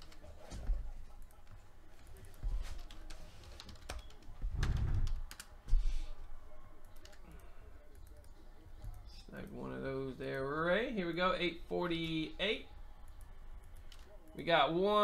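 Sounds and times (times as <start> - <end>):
keyboard typing: 0.0 - 5.6, 6.8 - 9.8.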